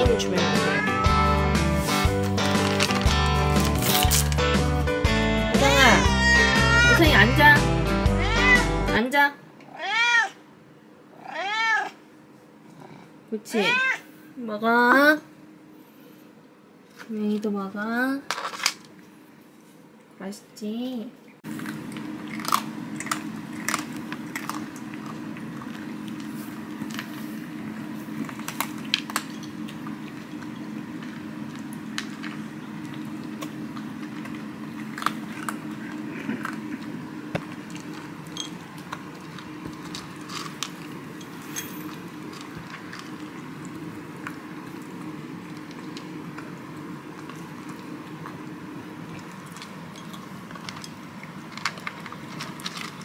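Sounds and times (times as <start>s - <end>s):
cats crunching dry kibble: 0.0s - 4.7s, 21.5s - 53.0s.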